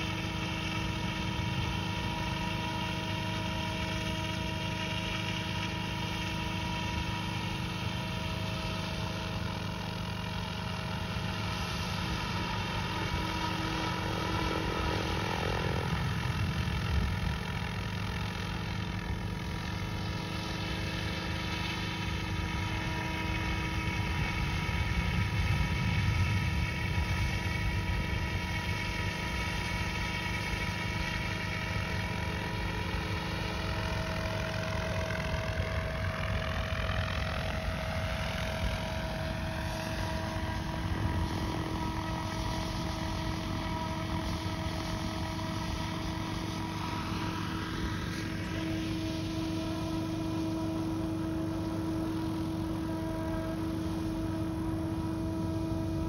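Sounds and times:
model helicopter rotor whine: 0.0 - 56.0.

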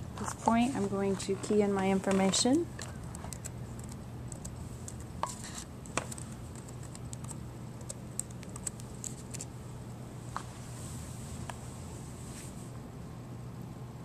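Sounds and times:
low steady hum: 0.0 - 14.0
laptop keys clicking: 2.8 - 5.0, 5.9 - 9.5.

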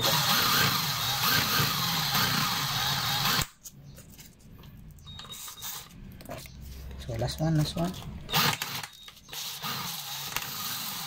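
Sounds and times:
power drill whirring: 0.0 - 3.5, 8.3 - 11.0.

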